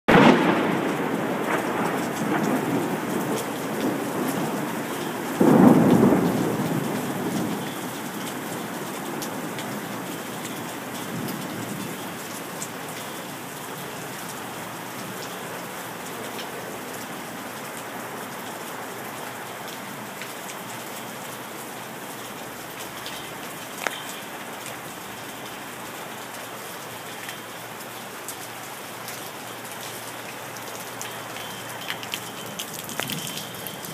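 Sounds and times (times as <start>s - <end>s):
thunder rumbling: 0.1s - 9.9s
rain pouring: 0.1s - 33.9s.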